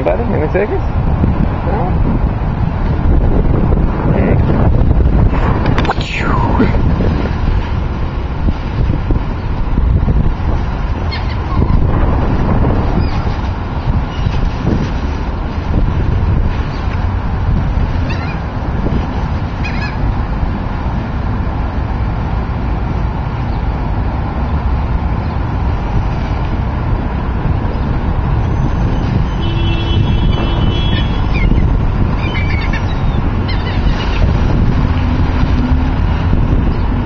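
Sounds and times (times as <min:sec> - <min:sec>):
wind buffeting microphone: 0:00.0 - 0:37.0
waterbird calls: 0:11.0 - 0:11.8, 0:18.0 - 0:18.6, 0:19.4 - 0:20.2, 0:28.5 - 0:35.0.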